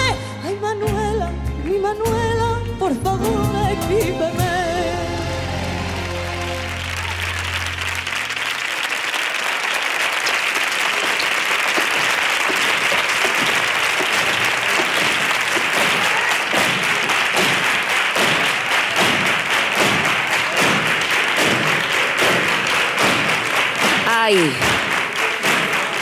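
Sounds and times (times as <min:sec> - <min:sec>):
studio audience applause: 0:05.4 - 0:26.0.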